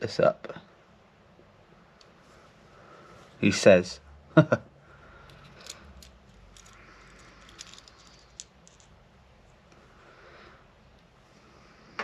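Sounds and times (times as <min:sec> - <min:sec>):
small metal clicks and scraping: 0:05.2 - 0:09.0.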